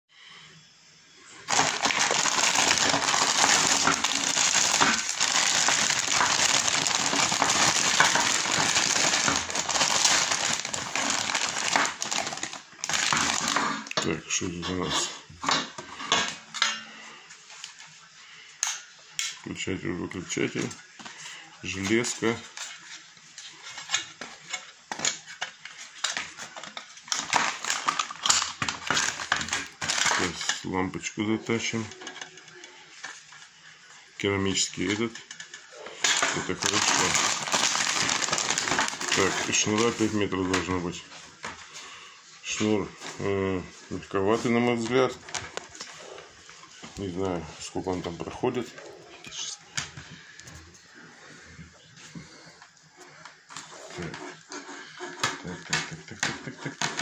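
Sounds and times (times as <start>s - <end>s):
plastic bag crinkling: 1.3s - 14.2s, 26.2s - 30.7s, 35.9s - 41.4s.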